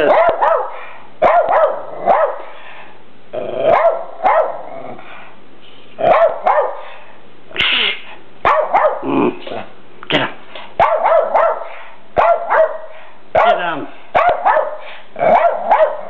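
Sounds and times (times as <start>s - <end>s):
dog barking: 0.0s - 2.5s, 3.6s - 4.7s, 6.0s - 6.9s, 8.4s - 9.1s, 10.8s - 16.0s.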